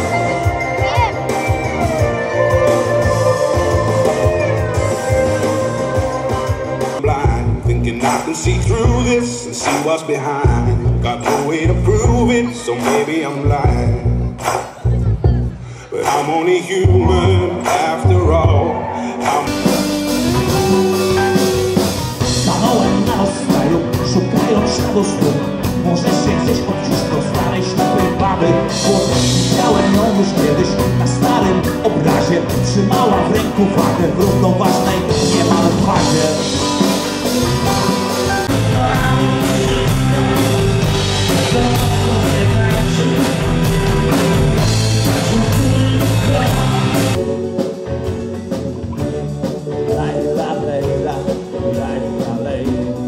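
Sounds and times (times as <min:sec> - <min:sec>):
man singing: 0:00.0 - 0:14.5, 0:15.8 - 0:48.2, 0:49.4 - 0:53.0
rock band playing: 0:00.0 - 0:53.0.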